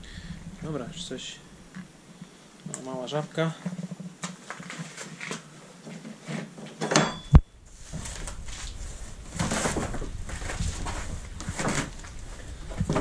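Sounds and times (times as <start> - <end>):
low rustling and scuffing: 7.7 - 13.0.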